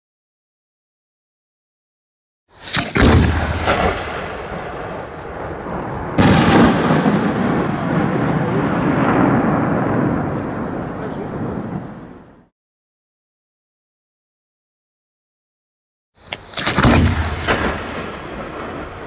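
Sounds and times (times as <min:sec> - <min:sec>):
firework launch thump: 0:02.6 - 0:04.3, 0:16.3 - 0:18.2.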